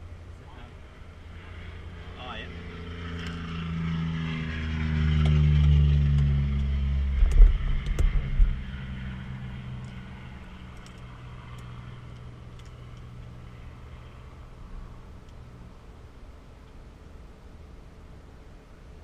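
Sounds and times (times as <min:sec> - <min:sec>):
aircraft engine shutting down: 0:00.0 - 0:18.6
faint steady hum: 0:00.0 - 0:19.0
propeller shuddering thumps: 0:00.9 - 0:15.4.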